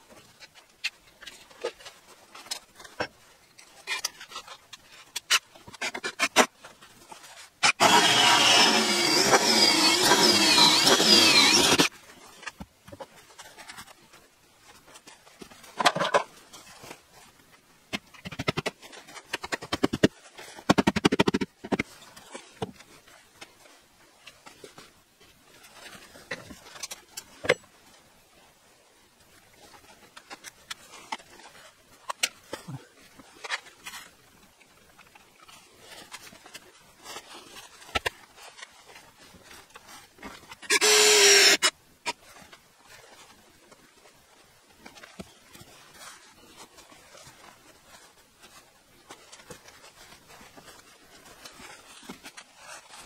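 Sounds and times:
cordless drill drilling: 0:07.6 - 0:11.9, 0:40.7 - 0:41.7.

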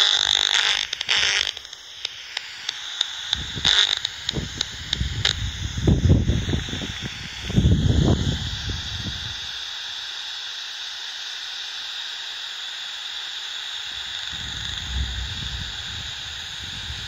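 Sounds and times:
bat detector hiss: 0:00.0 - 0:17.0
low rumbling noise: 0:13.9 - 0:17.0.

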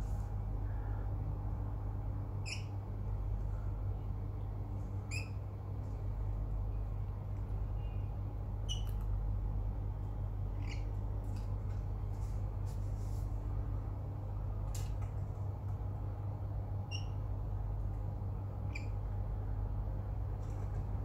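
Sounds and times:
steady low hum: 0:00.0 - 0:21.0
lorikeets squeaking: 0:02.4 - 0:02.8, 0:05.1 - 0:05.4, 0:08.7 - 0:08.9, 0:10.6 - 0:11.0, 0:16.9 - 0:17.2, 0:18.7 - 0:19.0.

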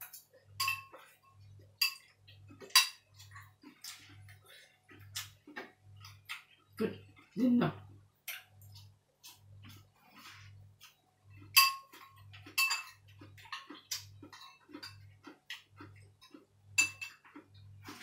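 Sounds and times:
spoon scraping and tapping: 0:00.0 - 0:04.2, 0:10.8 - 0:17.7
spoon clinking on ceramic bowl: 0:00.6 - 0:03.0, 0:11.5 - 0:13.7, 0:16.8 - 0:17.3.

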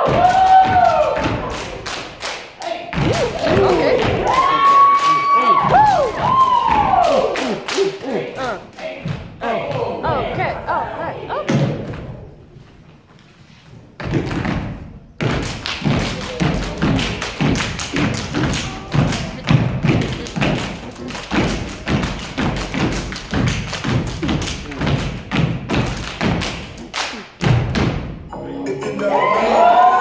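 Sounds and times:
rhythmic stomps on stage floor: 0:00.0 - 0:02.2, 0:02.9 - 0:07.6, 0:08.4 - 0:10.7, 0:14.0 - 0:28.2
hands clapping: 0:00.2 - 0:08.6, 0:15.3 - 0:27.4.

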